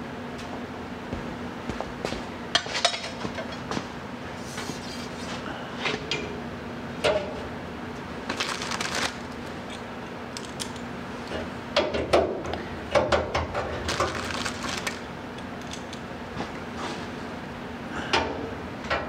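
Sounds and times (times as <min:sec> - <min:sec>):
steady low hum: 0:00.0 - 0:19.0
metal fasteners clicking: 0:09.6 - 0:10.8.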